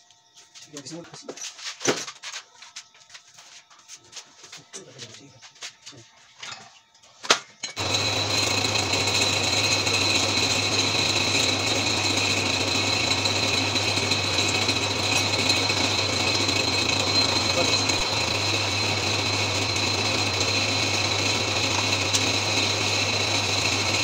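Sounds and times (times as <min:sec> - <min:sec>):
electric motor humming and whining: 0:07.8 - 0:24.0.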